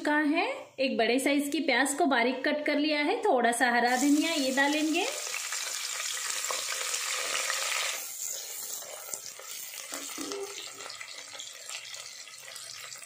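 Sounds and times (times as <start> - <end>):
onion sizzling in hot oil: 3.9 - 13.0.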